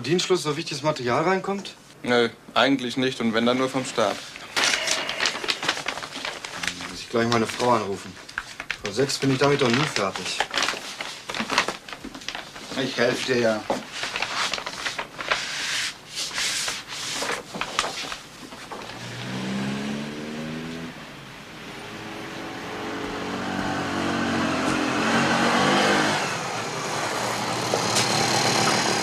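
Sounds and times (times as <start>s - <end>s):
rustling and clicking: 4.3s - 15.5s
motor scooter engine revving: 19.0s - 20.9s, 21.9s - 29.0s.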